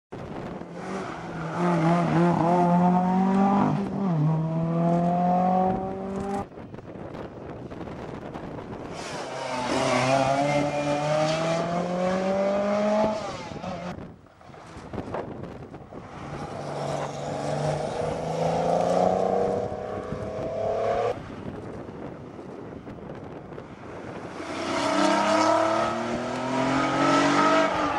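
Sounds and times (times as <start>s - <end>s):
rally car engine revving: 0.5s - 6.5s, 8.9s - 14.0s, 24.4s - 27.9s.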